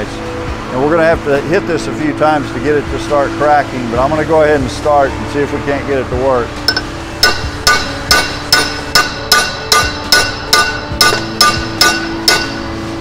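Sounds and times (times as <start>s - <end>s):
hammer striking steel ringing: 6.7s - 12.8s.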